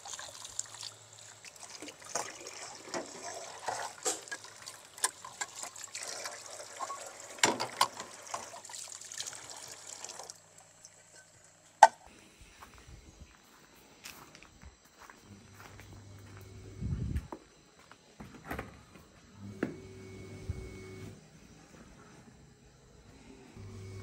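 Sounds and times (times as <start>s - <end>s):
water running and trickling: 0.0s - 11.6s.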